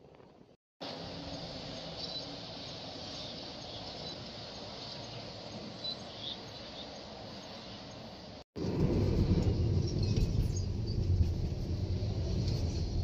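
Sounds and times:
outdoor ambient hiss: 0:00.0 - 0:13.0
faint high bird chirps: 0:01.7 - 0:08.1.

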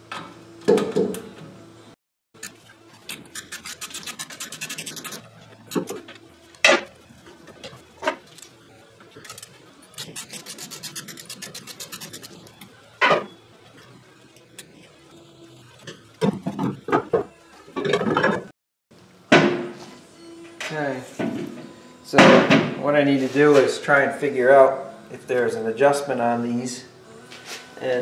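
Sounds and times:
metal rasping and clicking: 0:02.4 - 0:06.2, 0:09.2 - 0:12.6.

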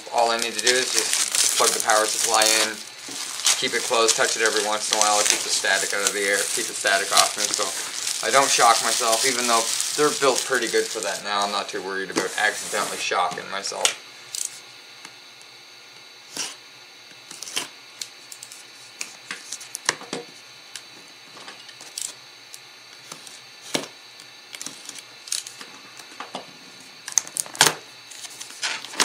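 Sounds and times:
packaging being handled and opened: 0:00.0 - 0:13.1.

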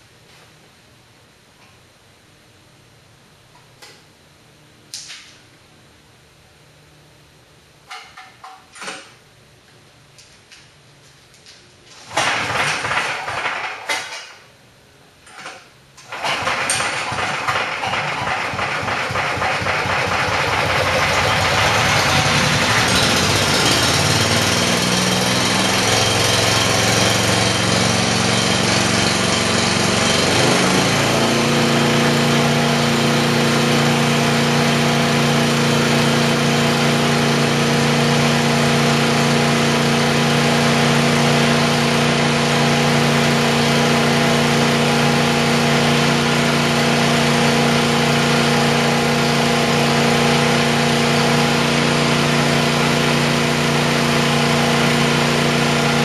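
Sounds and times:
chipper shredder engine running: 0:12.0 - 0:13.9, 0:16.0 - 0:56.0.

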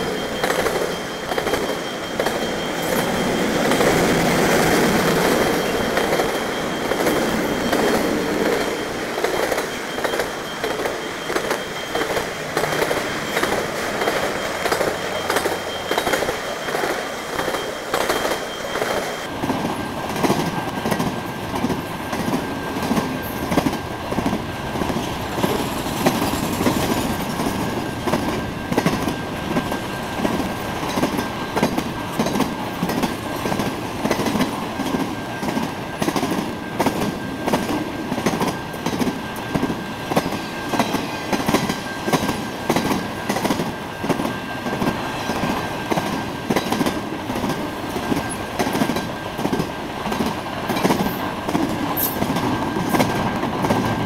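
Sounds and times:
thin high tone: 0:00.0 - 0:19.3
train wheels rumbling on rails: 0:00.0 - 0:54.0.

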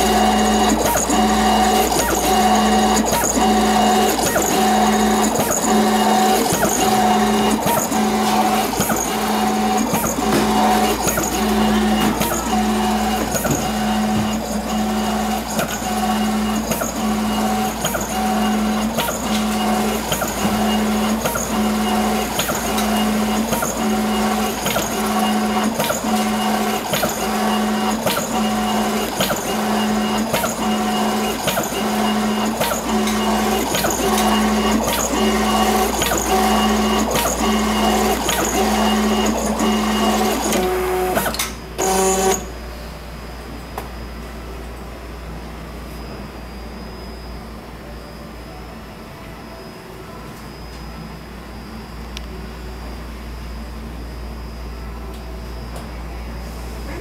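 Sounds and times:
plotter motor whine: 0:00.0 - 0:42.6.

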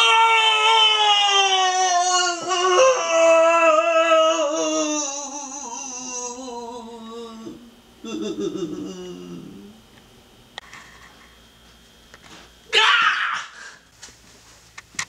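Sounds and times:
man wailing: 0:00.0 - 0:09.7, 0:12.7 - 0:13.6
man sobbing: 0:00.2 - 0:09.7.

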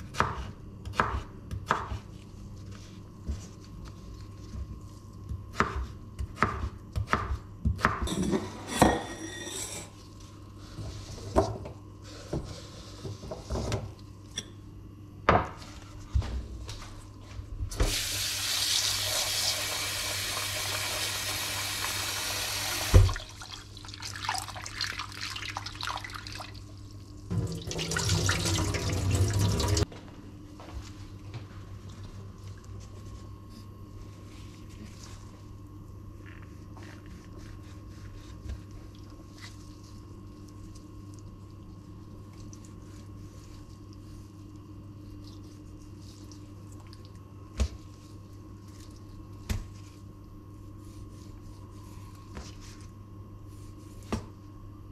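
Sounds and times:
tap water running into bowl: 0:27.3 - 0:29.8.

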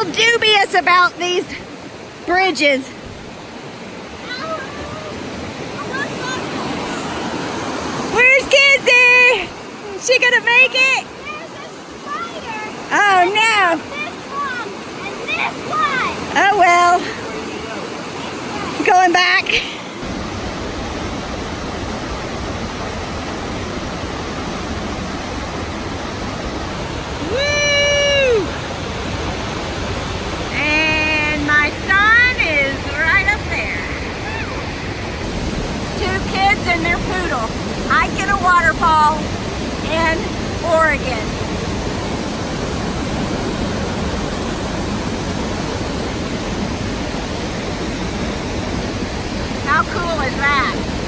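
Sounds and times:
waterfall rushing: 0:00.0 - 0:51.0.

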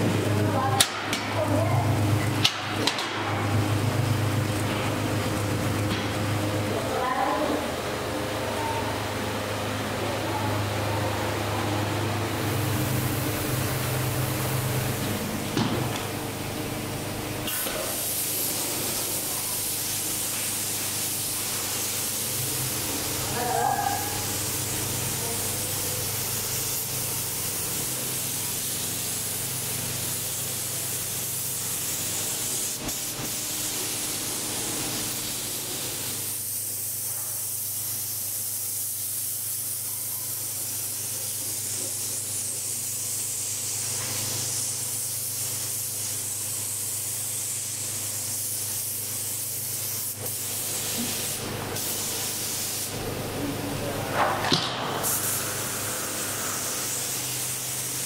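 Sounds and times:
low machine hum: 0:00.0 - 0:28.4
paint spray gun hissing: 0:12.3 - 0:53.0, 0:54.2 - 0:58.0.

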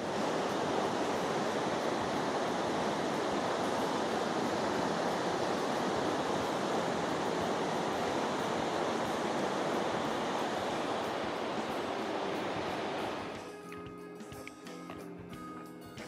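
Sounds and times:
river rushing over rapids: 0:00.0 - 0:13.7.

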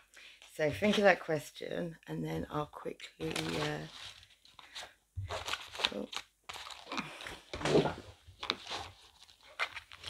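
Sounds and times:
cards and paper rustling: 0:03.2 - 0:10.0.

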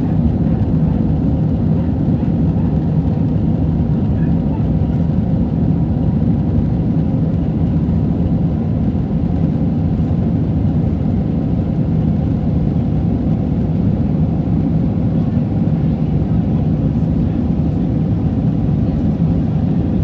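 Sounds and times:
jet engine cabin rumble: 0:00.0 - 0:20.0.

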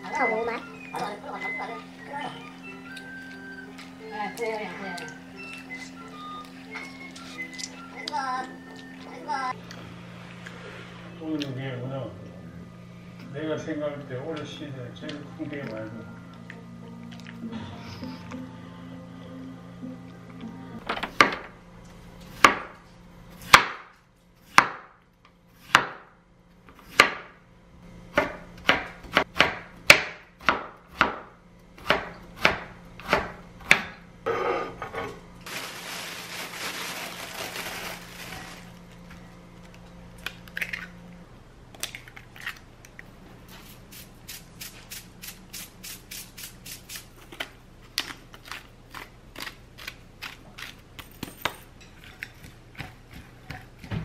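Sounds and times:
knife chopping on wooden board: 0:23.5 - 0:23.9, 0:24.5 - 0:24.9, 0:25.6 - 0:26.1, 0:26.7 - 0:27.3, 0:28.2 - 0:34.0.

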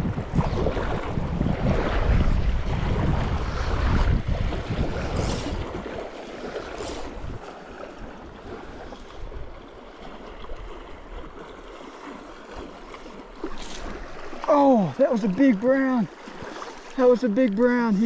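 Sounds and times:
wind buffeting microphone: 0:00.0 - 0:09.8
river rushing: 0:11.8 - 0:17.4.

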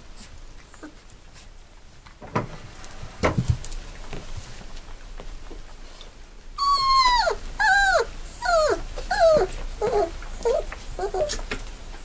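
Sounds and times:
puppy whining cries: 0:06.6 - 0:11.5
puppy yelps: 0:06.6 - 0:11.5.

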